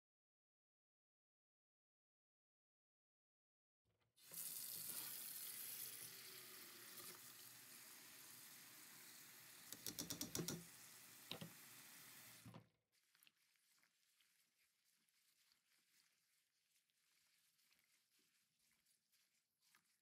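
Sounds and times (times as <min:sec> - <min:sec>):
tap water running into bowl: 0:04.2 - 0:12.6.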